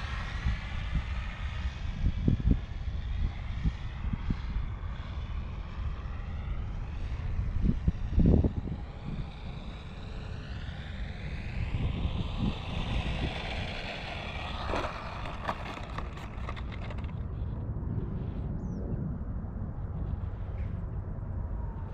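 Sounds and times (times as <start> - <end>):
model airplane motor whine: 0.0 - 17.3
wind rumble on microphone: 0.0 - 21.9
wheels clicking and rattling on asphalt: 8.5 - 17.4.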